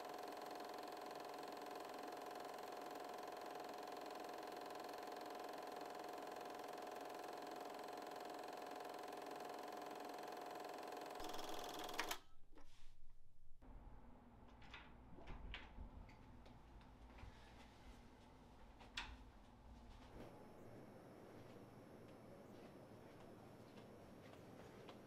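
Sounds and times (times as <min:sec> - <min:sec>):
film projector whirring: 0:00.0 - 0:12.2.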